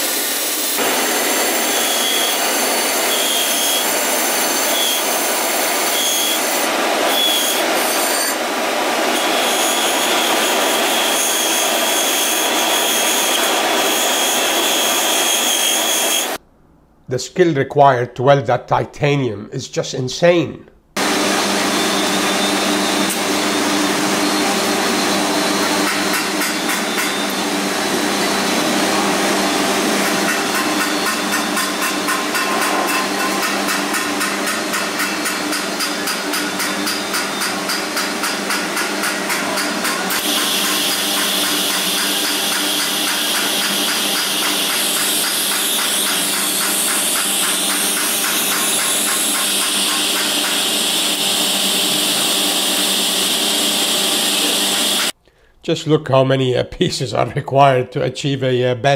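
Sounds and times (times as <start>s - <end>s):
welding drone and hiss: 0.0s - 16.4s, 30.2s - 55.1s.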